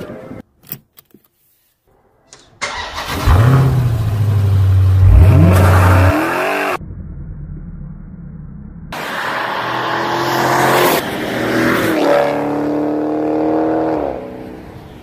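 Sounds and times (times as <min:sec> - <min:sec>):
engine revving loudly: 0:03.0 - 0:06.8.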